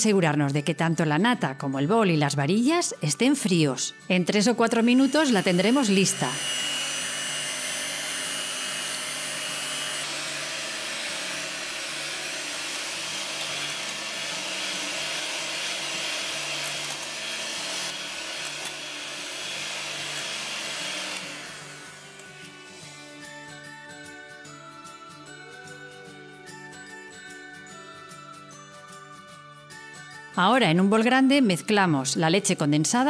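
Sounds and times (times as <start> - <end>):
electric hand mixer whipping cream: 4.6 - 23.3.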